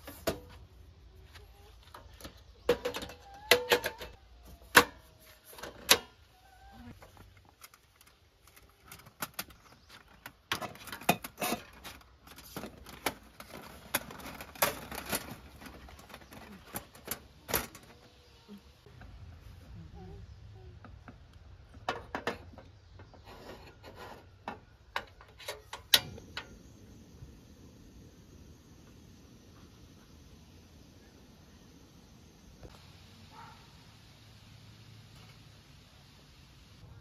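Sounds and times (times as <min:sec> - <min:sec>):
metal clicks and clacks of camp stove: 0:01.9 - 0:06.2, 0:07.1 - 0:17.9, 0:23.7 - 0:26.6.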